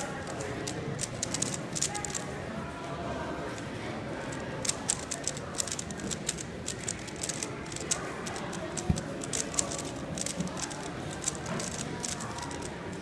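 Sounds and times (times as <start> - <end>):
plastic puzzle cube clicks: 0.0 - 2.2, 4.6 - 12.8
murmured chatter: 0.0 - 13.0.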